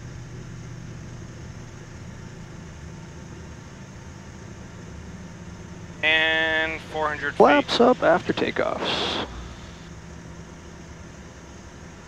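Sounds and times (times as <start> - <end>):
low steady hum: 0.9 - 12.0
jet engine and airflow rush: 6.0 - 9.9.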